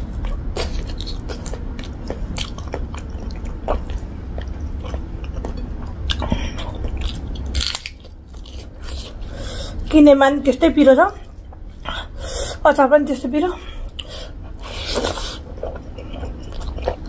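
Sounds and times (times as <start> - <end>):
low steady hum: 0.0 - 17.0
person chewing with wet mouth clicks: 0.2 - 9.1, 13.9 - 14.2.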